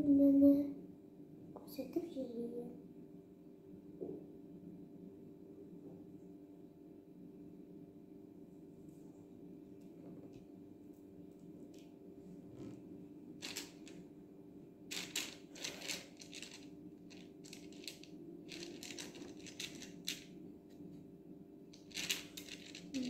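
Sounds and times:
faint steady hum: 0.0s - 23.0s
plastic beads clicking: 13.4s - 14.0s, 14.9s - 20.2s, 21.8s - 23.0s.

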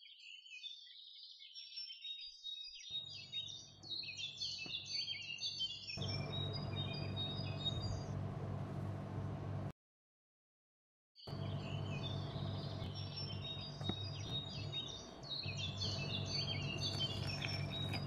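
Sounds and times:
small birds chirping: 0.0s - 9.7s, 11.3s - 18.0s
low background hum: 6.0s - 9.7s, 11.3s - 18.0s.

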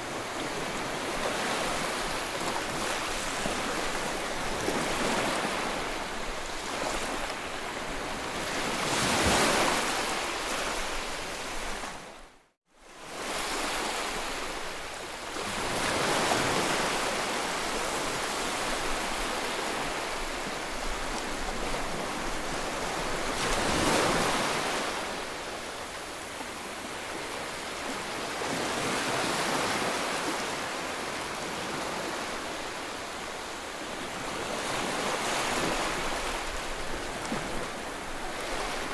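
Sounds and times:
sea waves washing on shore: 13.0s - 38.9s.

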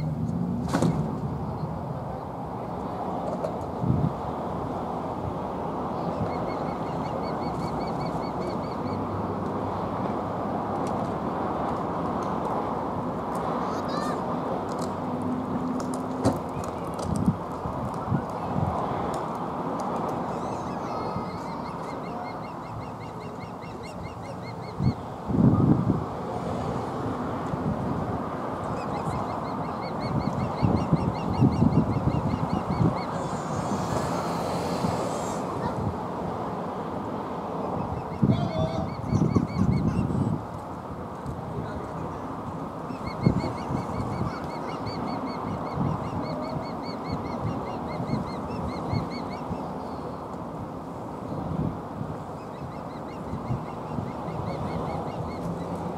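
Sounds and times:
osprey chirping: 20.3s - 25.0s.

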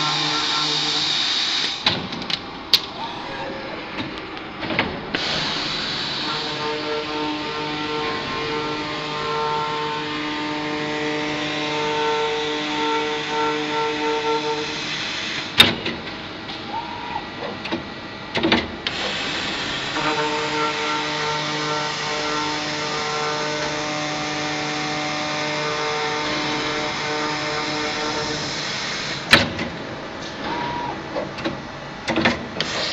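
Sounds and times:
circular saw humming: 5.2s - 14.9s.

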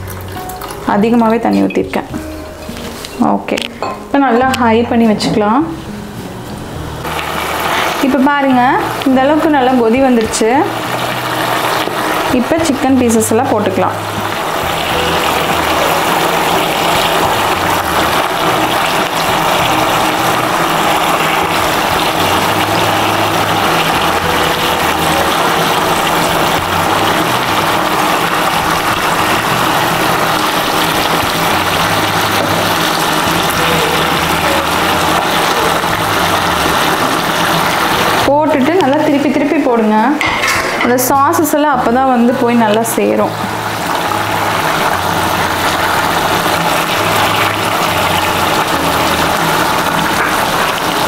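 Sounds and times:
gravy boiling and bubbling: 0.0s - 1.4s, 7.0s - 39.7s, 41.2s - 51.0s
background music with bass: 0.0s - 51.0s.

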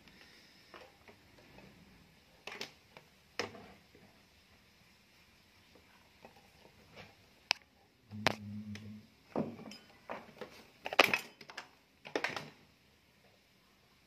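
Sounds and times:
low mains buzz: 7.4s - 10.2s.

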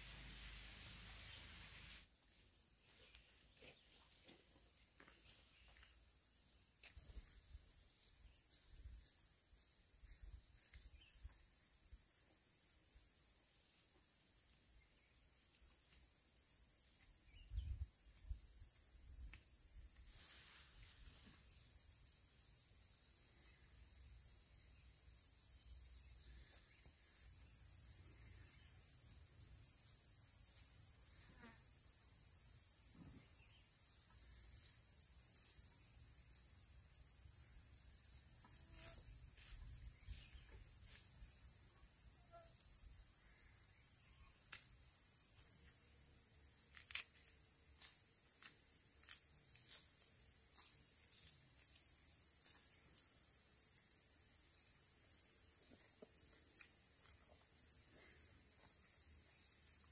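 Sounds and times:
high-pitched insect buzz: 0.0s - 2.1s, 25.4s - 45.8s
insect chirps: 0.0s - 59.9s.

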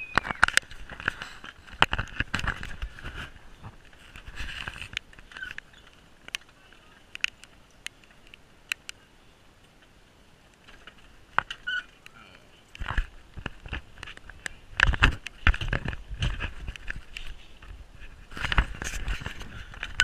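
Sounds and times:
short squeak: 11.6s - 11.9s.

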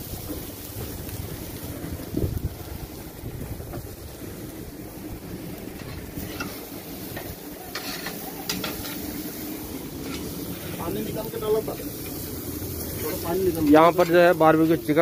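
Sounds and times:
wind buffeting microphone: 0.0s - 6.3s
metal spatula scraping grill grate: 5.7s - 15.0s.

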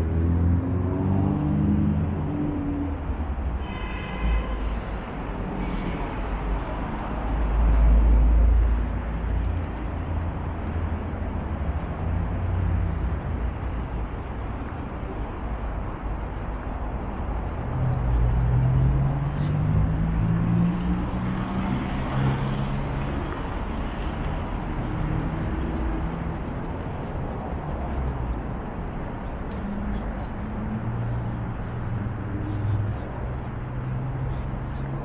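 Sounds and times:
hum of cars: 0.0s - 35.0s.

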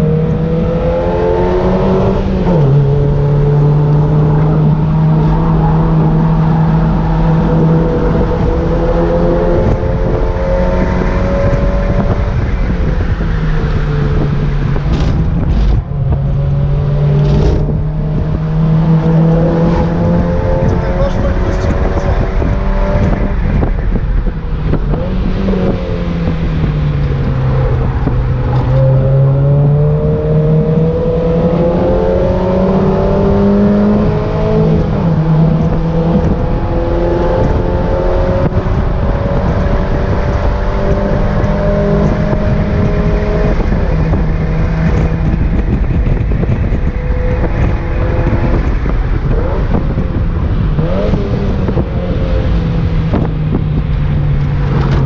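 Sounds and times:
car engine at speed: 0.0s - 55.0s
wind noise: 0.0s - 55.0s.

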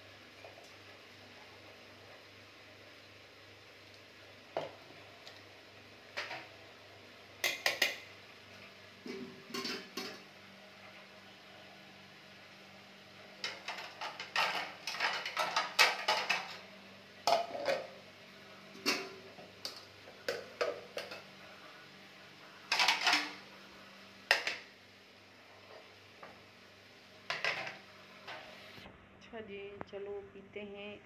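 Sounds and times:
faint steady hum: 0.0s - 31.0s
kitchenware clinking and scraping: 9.0s - 10.2s, 13.4s - 16.6s, 17.3s - 18.0s, 18.8s - 21.3s, 22.7s - 23.4s, 27.3s - 28.6s.

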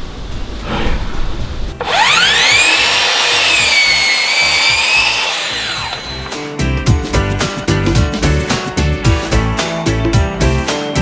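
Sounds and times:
music: 1.7s - 11.0s
saw cutting wood: 1.8s - 6.4s
mitre saw whining: 1.8s - 6.5s.

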